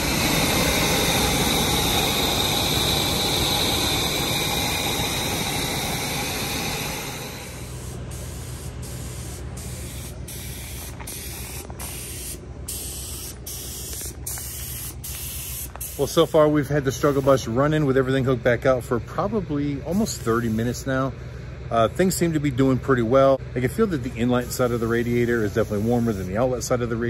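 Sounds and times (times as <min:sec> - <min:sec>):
paint spray gun hissing: 0:00.0 - 0:17.5, 0:24.2 - 0:26.5
water spraying hiss: 0:00.0 - 0:17.5, 0:24.5 - 0:26.4
engine running: 0:00.0 - 0:27.0.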